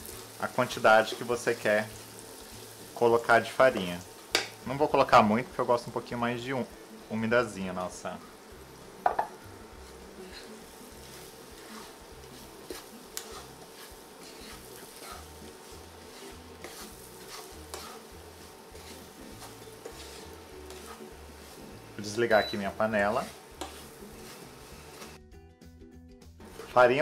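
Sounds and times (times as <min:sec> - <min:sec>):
wooden spoon scraping a pan: 0:00.0 - 0:05.4, 0:08.1 - 0:25.2, 0:26.4 - 0:27.0
faint sizzle: 0:00.0 - 0:25.2, 0:26.4 - 0:27.0
spoon clicking on pan: 0:04.3 - 0:04.6.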